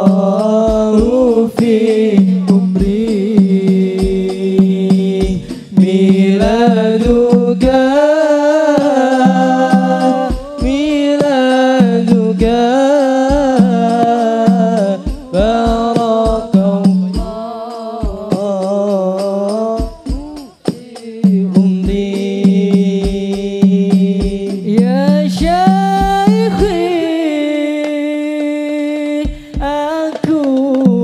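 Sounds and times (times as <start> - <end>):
hand drum strokes: 0.0 - 28.0
men singing together: 0.0 - 31.0.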